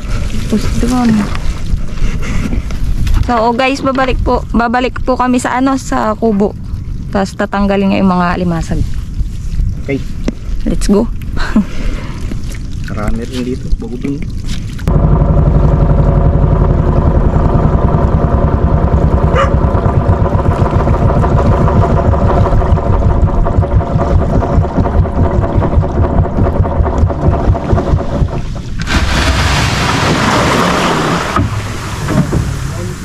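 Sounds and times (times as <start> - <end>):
water rushing at boat hull: 0.0 - 33.0
small boat engine pulsing: 14.2 - 33.0.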